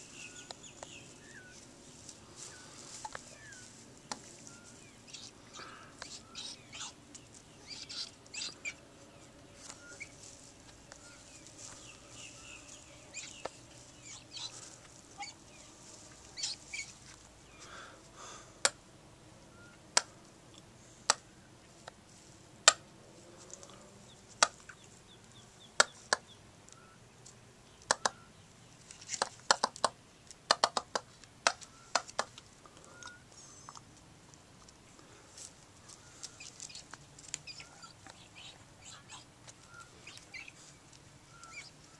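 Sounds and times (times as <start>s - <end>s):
peahen and chick calling: 0.0s - 22.0s, 22.6s - 34.0s, 34.6s - 41.9s
sharp clicks: 27.8s - 28.2s, 29.1s - 33.9s.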